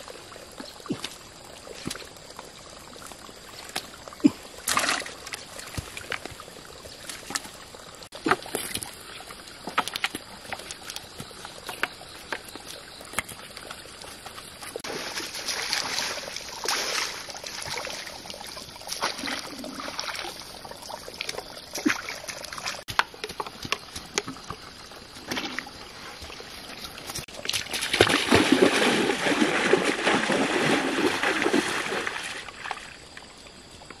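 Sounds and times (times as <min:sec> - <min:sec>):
feet wading through stream: 0:00.0 - 0:33.1
water splashing from net: 0:04.6 - 0:06.1, 0:14.8 - 0:18.2, 0:21.7 - 0:22.8, 0:27.4 - 0:32.8.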